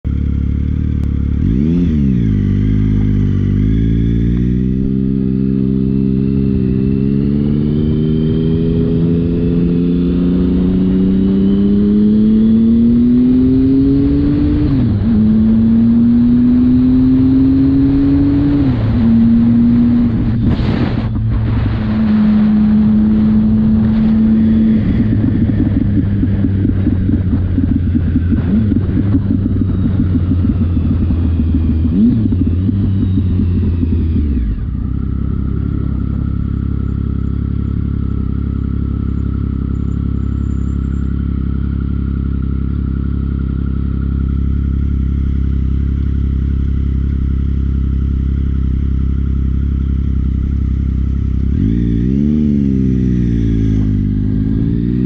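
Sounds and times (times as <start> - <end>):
motorcycle engine revving: 0.1 - 55.0.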